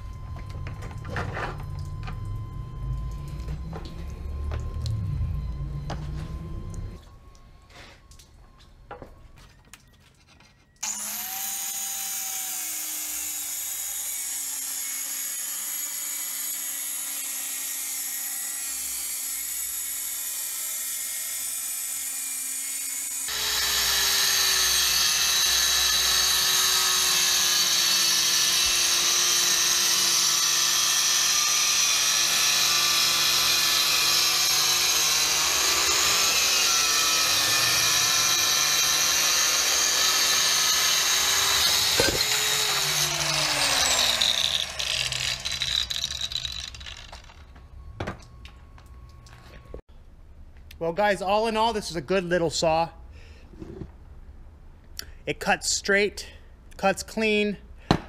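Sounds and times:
tile saw whine: 0:00.0 - 0:49.8
saw cutting through tile: 0:10.3 - 0:47.4.

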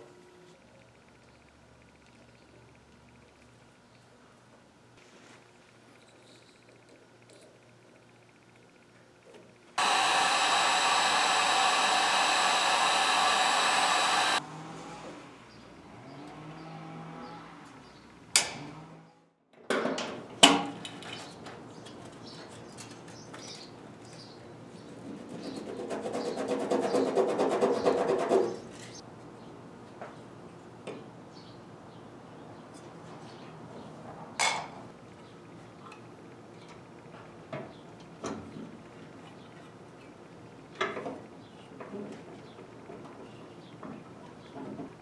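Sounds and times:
heat gun blowing: 0:09.8 - 0:14.4.

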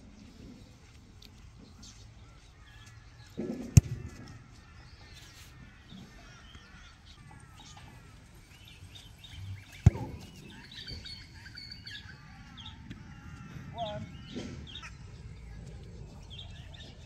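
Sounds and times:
birds chirping faintly: 0:00.0 - 0:17.0
boot kicking a football: 0:03.4 - 0:04.4, 0:09.7 - 0:10.6.

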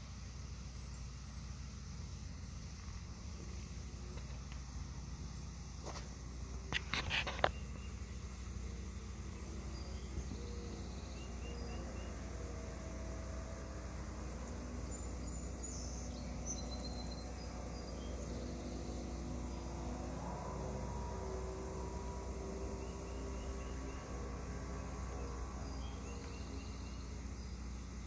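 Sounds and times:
faint high chirps: 0:06.6 - 0:28.0.

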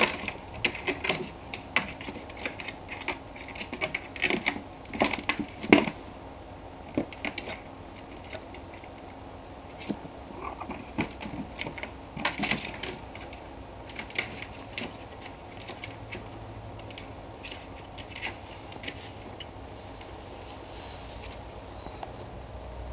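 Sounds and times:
kitten claws scrabbling on plastic: 0:00.0 - 0:06.0, 0:06.9 - 0:09.0, 0:09.7 - 0:19.5.

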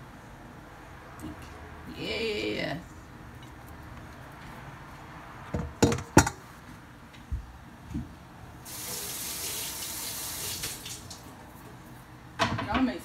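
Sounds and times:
kitchenware knocking and clinking: 0:05.6 - 0:06.4, 0:12.4 - 0:12.9
tap water running into sink: 0:08.7 - 0:11.2.

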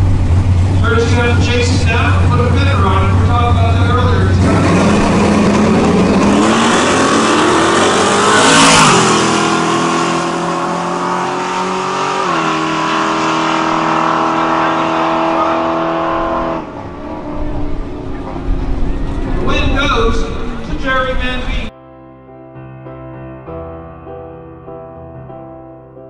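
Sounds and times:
pickup trucks accelerating hard: 0:00.0 - 0:20.9.

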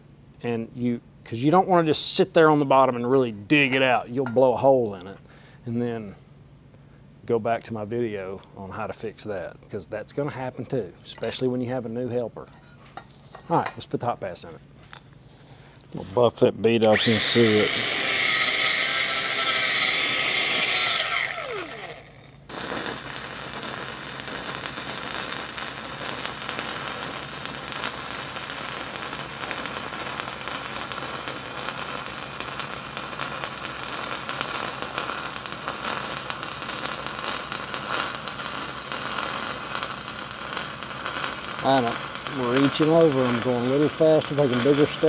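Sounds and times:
grinder spinning down: 0:16.9 - 0:45.0
welding arc crackling: 0:17.0 - 0:45.0.

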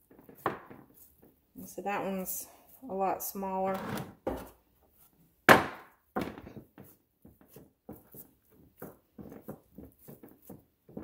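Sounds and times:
dough tapping and bumping: 0:00.0 - 0:01.7, 0:04.2 - 0:11.0.

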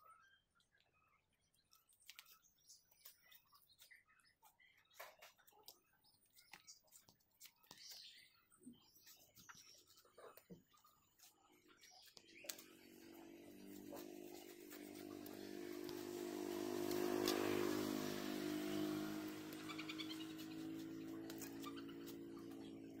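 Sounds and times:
vehicle engine passing: 0:12.8 - 0:23.0.

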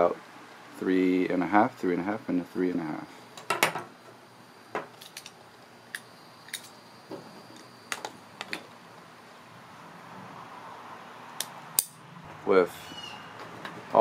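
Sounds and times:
ratcheting pipe cutter clicking: 0:11.4 - 0:12.0.

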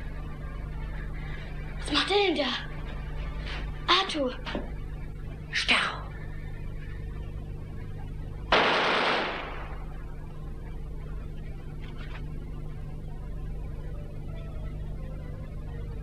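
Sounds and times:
low hum: 0:00.0 - 0:16.0
gunshot: 0:08.5 - 0:09.8.

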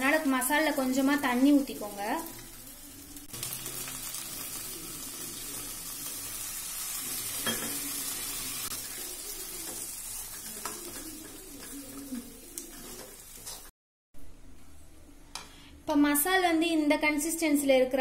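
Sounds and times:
paste sizzling and bubbling: 0:00.0 - 0:13.7.

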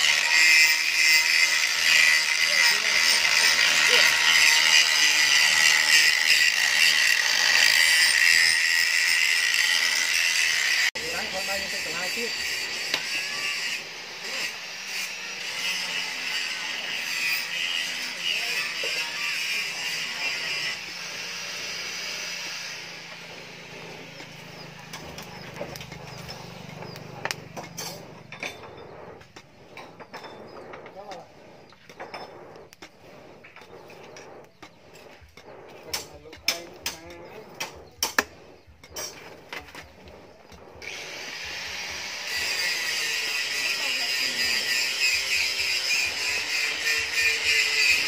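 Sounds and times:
angle grinder grinding steel: 0:00.0 - 0:48.0
metal tongs clinking and scraping: 0:24.1 - 0:32.9.

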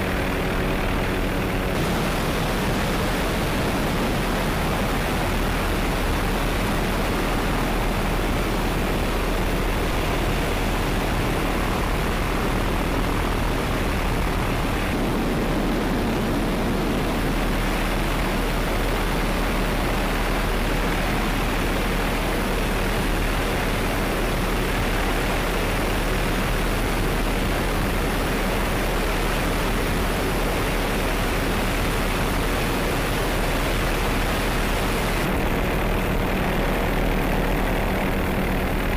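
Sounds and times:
constant low hum: 0:00.0 - 0:38.9
helicopter rushing noise: 0:00.0 - 0:38.9.

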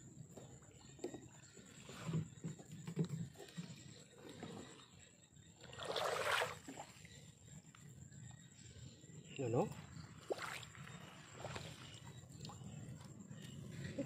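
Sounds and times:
water sloshing around boat: 0:00.0 - 0:14.0.

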